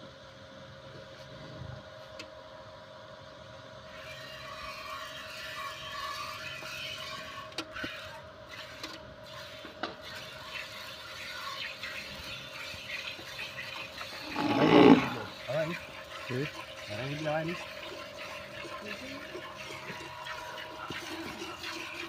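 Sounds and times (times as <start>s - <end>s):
milk squirting into metal pail: 10.1s - 22.0s.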